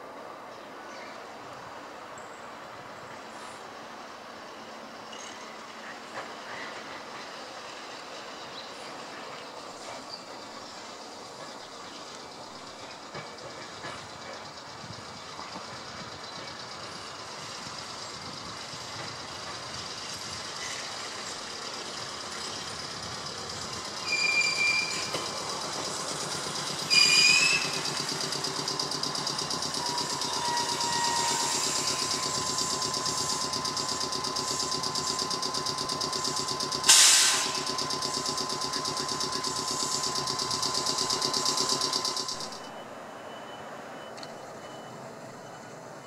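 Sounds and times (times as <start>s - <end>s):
electric train arriving: 0.0s - 46.0s
brake squeals: 8.8s - 46.0s
air hiss: 30.0s - 42.2s.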